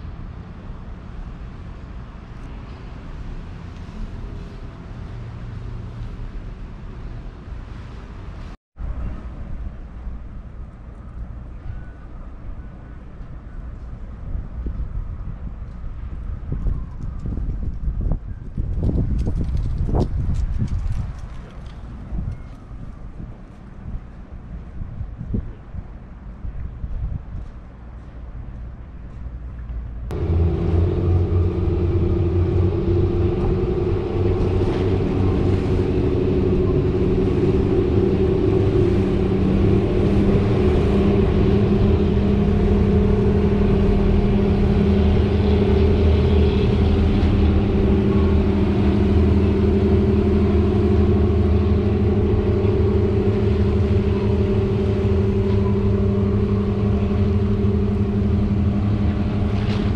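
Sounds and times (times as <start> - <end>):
ferry engine droning: 27.8 - 59.9.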